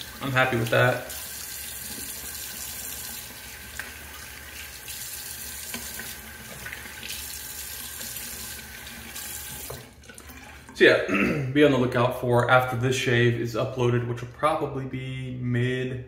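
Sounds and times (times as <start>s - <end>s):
tap running into sink: 5.6s - 7.2s, 9.2s - 10.3s.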